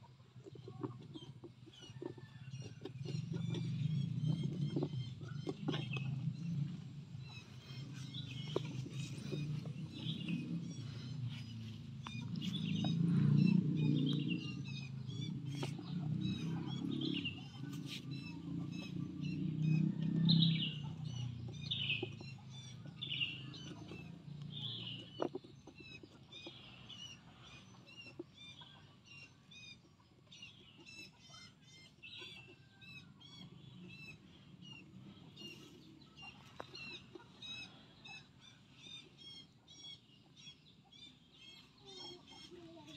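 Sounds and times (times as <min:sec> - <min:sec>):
small birds chirping: 0:00.0 - 0:42.9
low rumble: 0:03.2 - 0:21.9.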